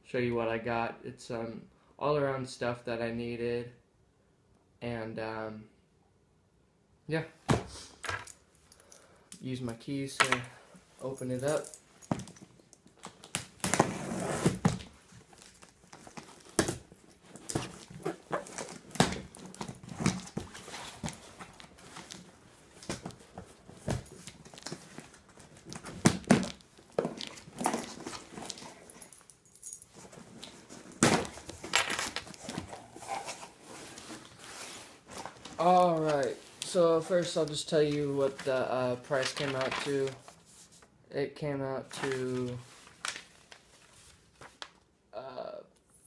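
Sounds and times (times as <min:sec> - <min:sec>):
cardboard rustling: 0:11.9 - 0:40.8, 0:41.9 - 0:44.7.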